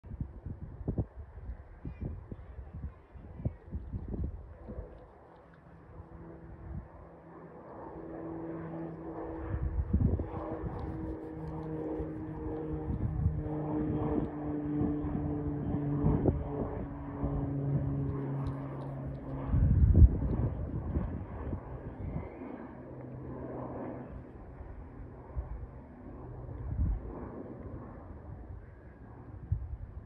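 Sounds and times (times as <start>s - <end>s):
propeller plane engine droning: 0.1s - 30.0s.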